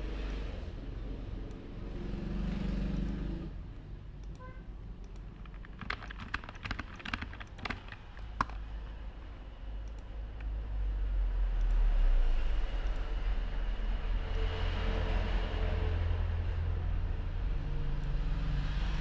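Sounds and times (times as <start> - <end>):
keyboard typing: 4.2 - 8.7.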